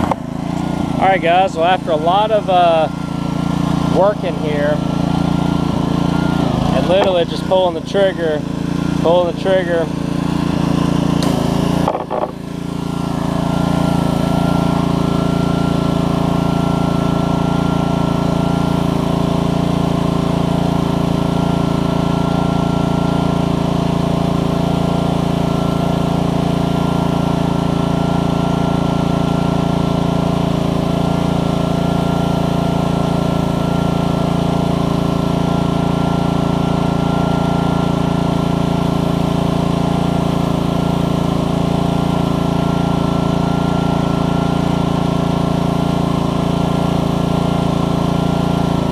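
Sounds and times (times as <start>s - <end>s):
pressure washer engine running: 0.0s - 48.9s.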